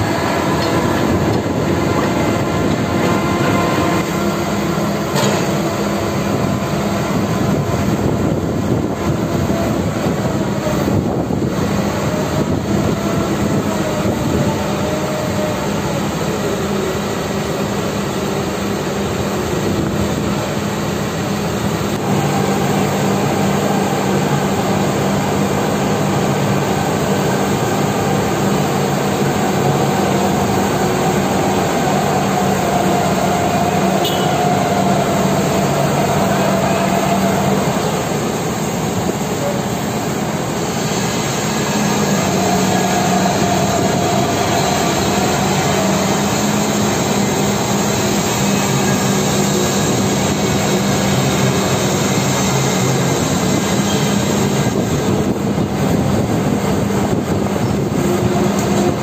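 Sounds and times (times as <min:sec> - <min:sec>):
heavy diesel machinery running: 0:00.0 - 0:59.0.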